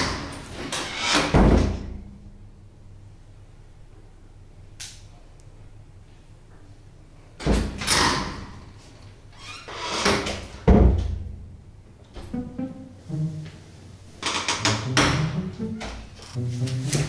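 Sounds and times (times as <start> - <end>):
background music: 12.2 - 17.0.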